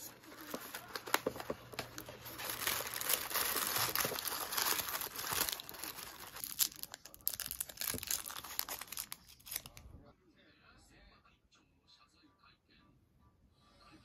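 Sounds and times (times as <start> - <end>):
paper wrapper crinkling: 0.0 - 9.9.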